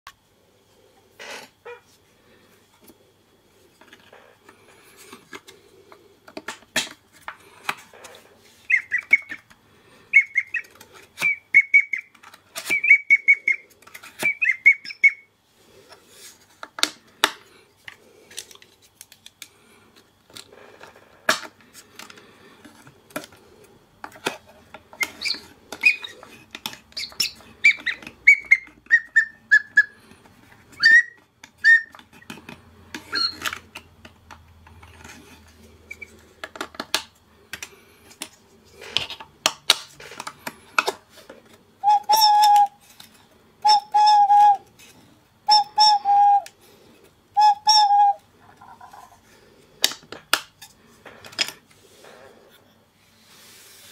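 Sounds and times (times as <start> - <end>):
bird-like whistle toots: 8.7 - 9.4, 10.1 - 13.6, 14.2 - 15.3, 27.0 - 30.0, 30.8 - 32.0, 41.8 - 42.8, 43.6 - 44.6, 45.5 - 46.5, 47.4 - 48.2.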